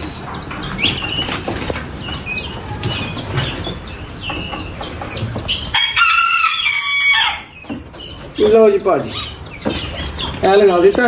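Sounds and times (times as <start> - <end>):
birds chirping: 0.0 - 11.0
wings flapping: 0.8 - 2.0.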